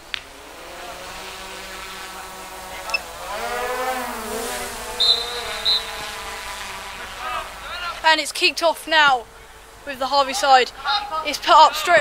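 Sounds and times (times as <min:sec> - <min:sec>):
passing vehicle engine: 0:00.0 - 0:08.2
referee's whistle blasts: 0:05.0 - 0:06.1.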